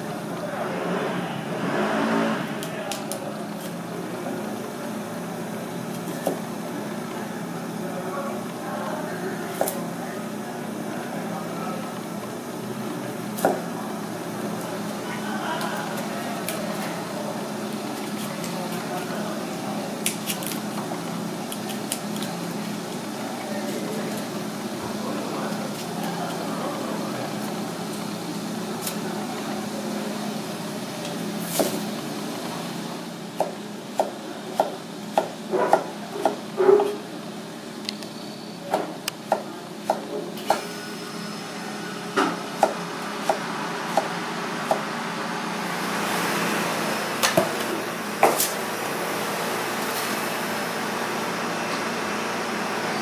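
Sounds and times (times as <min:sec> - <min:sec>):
knife chopping on cutting board: 0:33.4 - 0:37.0
gas burner rushing: 0:40.4 - 0:42.5.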